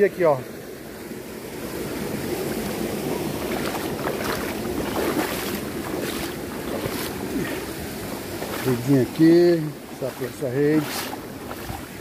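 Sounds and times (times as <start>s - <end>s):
water sloshing in a stream: 0.4s - 12.0s
short splashes: 3.1s - 12.0s.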